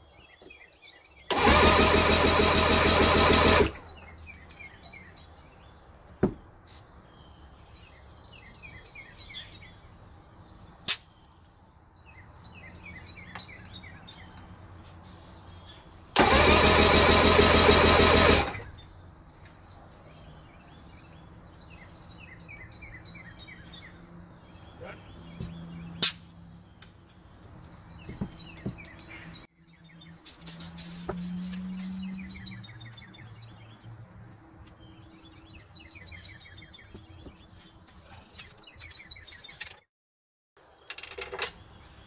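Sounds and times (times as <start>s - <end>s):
birds chirping: 0.0s - 39.9s
outboard engine cranking on starter: 1.3s - 4.0s, 16.1s - 18.8s.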